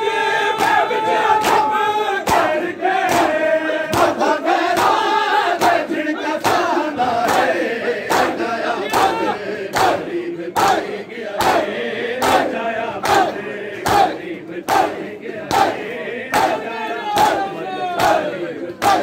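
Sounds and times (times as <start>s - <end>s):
men chanting together: 0.0s - 19.0s
hands slapping bare chests: 1.4s - 2.5s, 3.1s - 4.2s.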